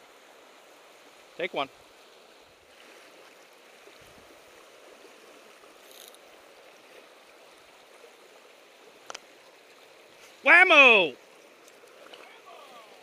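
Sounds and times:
river running over riffle: 0:00.0 - 0:13.0
faint scratchy hiss: 0:05.6 - 0:13.0.

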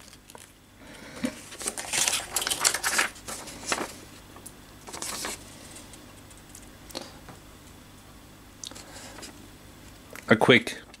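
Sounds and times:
paper and card rustling: 0:01.2 - 0:04.2, 0:04.8 - 0:06.7.

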